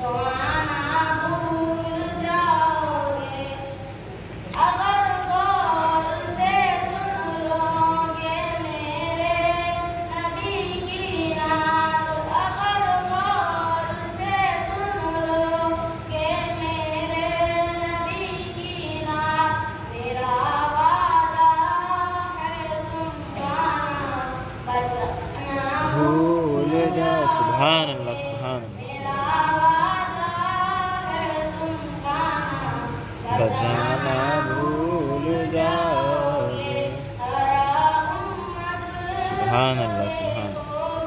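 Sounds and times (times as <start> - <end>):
boy singing into a microphone: 0.0 - 41.0.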